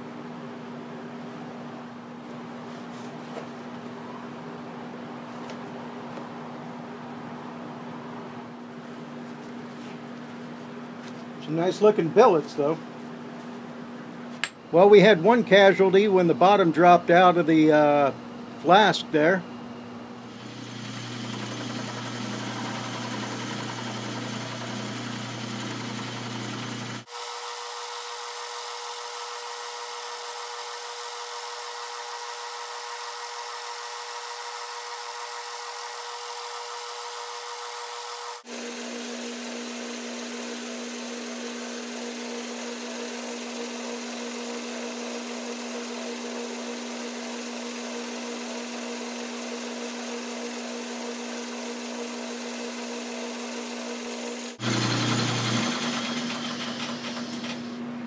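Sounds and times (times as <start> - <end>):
lathe humming: 20.2 - 27.1, 37.0 - 57.8.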